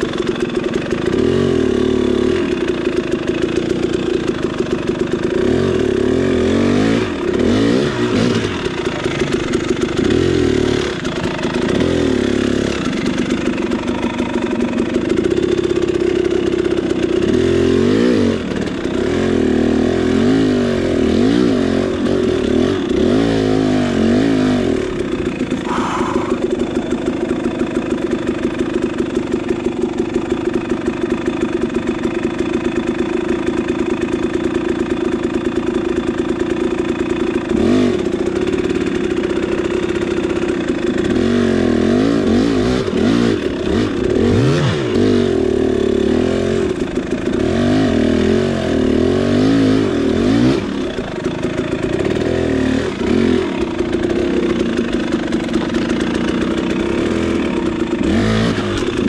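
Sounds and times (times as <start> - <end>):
dirt bike engine idling: 0.0 - 59.0
engine throttle blips: 24.8 - 30.7.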